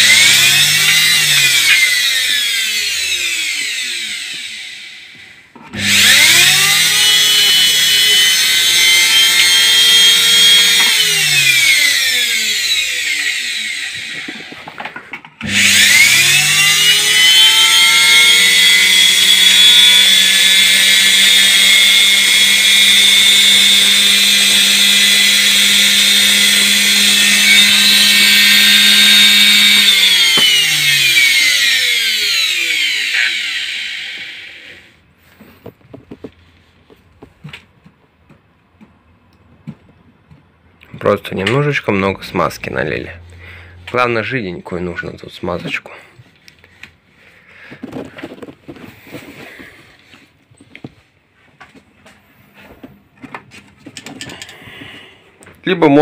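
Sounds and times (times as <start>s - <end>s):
electric motor whining: 0.0s - 14.8s, 15.4s - 35.5s.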